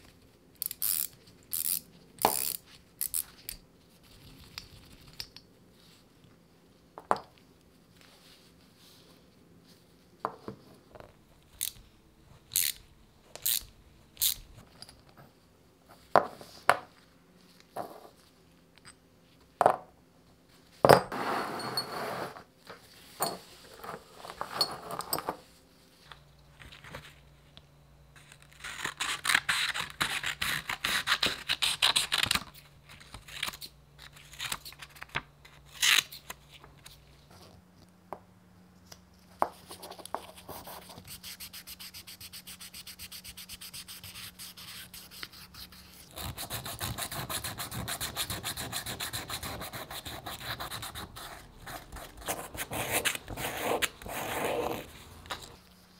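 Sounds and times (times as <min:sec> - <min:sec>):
sandpaper rubbing strokes: 0:40.6 - 0:55.1.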